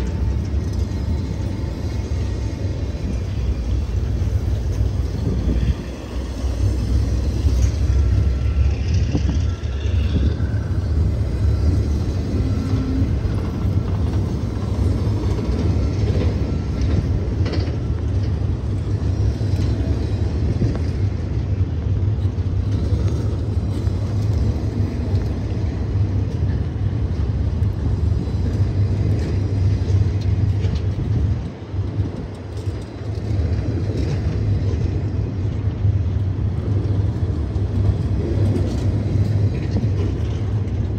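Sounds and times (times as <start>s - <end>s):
faint wheel squeals and clicks: 0.0s - 21.2s
freight train rumbling past: 0.0s - 40.9s.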